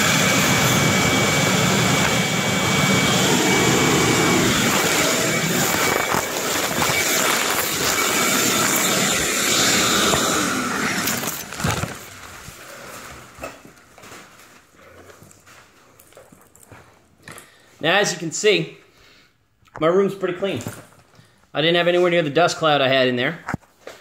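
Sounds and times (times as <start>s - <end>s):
vacuum running: 0.0s - 16.3s.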